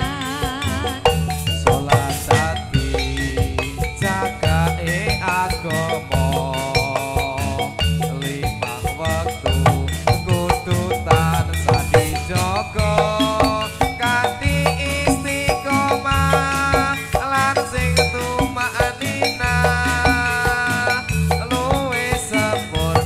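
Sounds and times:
drums: 0.0s - 23.0s
struck metallophone melody: 0.0s - 23.0s.

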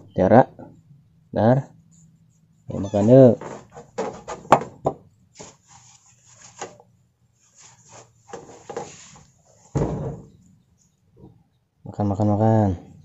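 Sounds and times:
enamel plate knocking on floorboards: 3.4s - 5.0s.

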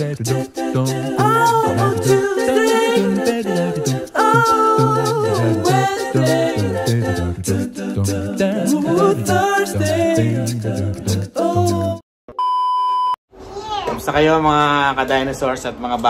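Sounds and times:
person singing wavering notes: 0.0s - 12.0s.

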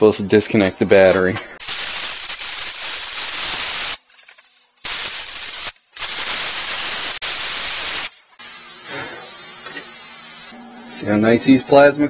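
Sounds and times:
plasma cutter hissing: 1.6s - 4.0s, 4.8s - 10.5s.

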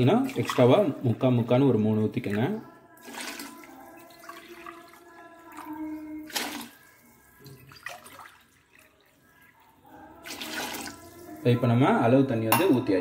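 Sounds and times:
water pouring into a metal tumbler: 2.0s - 11.6s.

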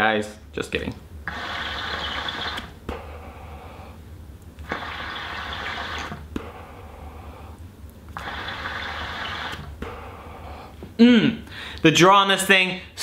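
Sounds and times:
hookah water bubbling: 1.3s - 3.2s, 4.6s - 10.2s.

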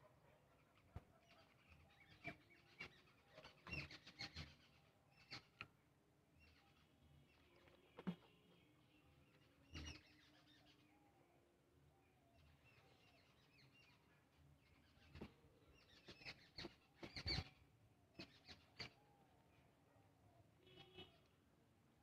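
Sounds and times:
faint birds chirping: 0.0s - 22.0s.

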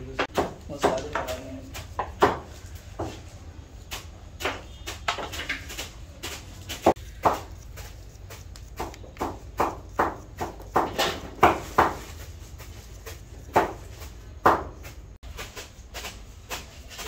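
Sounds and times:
knife slicing cucumber: 3.8s - 14.9s.

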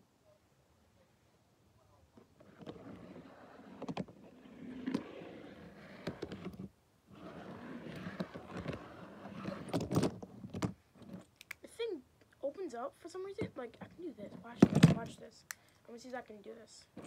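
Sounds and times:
toy car scraping and rolling on plastic: 2.4s - 11.3s.

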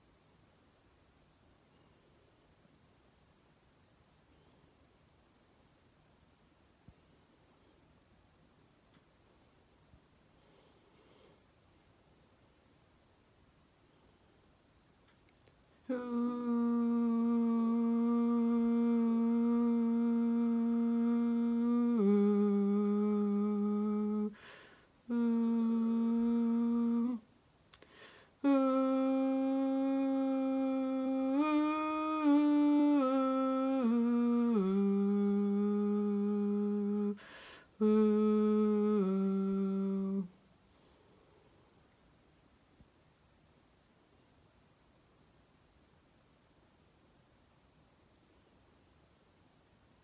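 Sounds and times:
woman humming: 15.4s - 40.4s.

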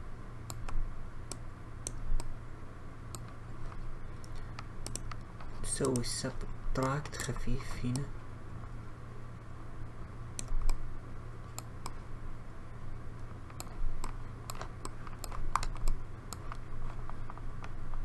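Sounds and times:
steady low hum: 0.0s - 18.0s
keyboard and mouse clicks: 0.5s - 2.3s, 3.1s - 6.1s, 10.4s - 10.8s, 13.5s - 17.8s.

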